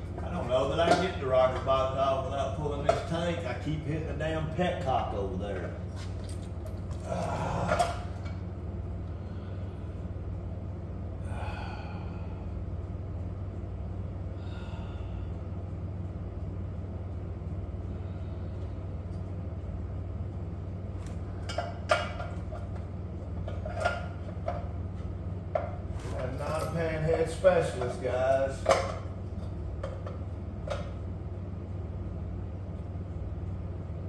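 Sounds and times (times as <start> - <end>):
steady low hum: 0.0 - 34.0
metal clinks and knocks: 23.4 - 24.7, 25.5 - 29.2.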